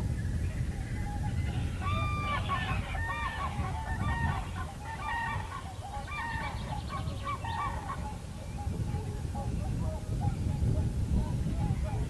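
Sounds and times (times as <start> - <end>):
waterbirds honking: 1.0 - 10.5.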